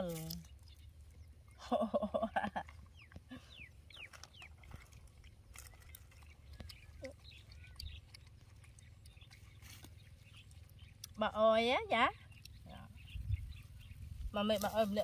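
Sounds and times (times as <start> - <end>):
wind rumble on microphone: 12.9 - 15.0.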